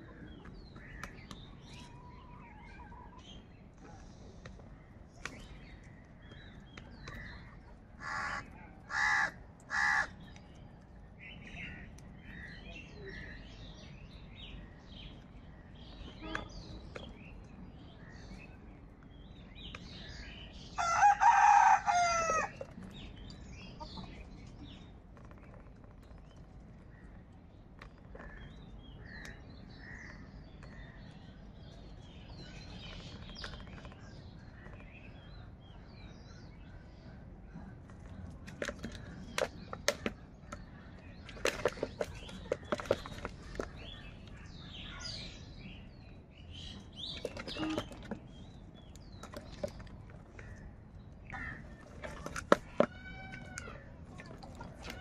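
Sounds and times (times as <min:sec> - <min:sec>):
small birds chirping: 0:00.0 - 0:55.0
crows cawing: 0:08.0 - 0:10.2.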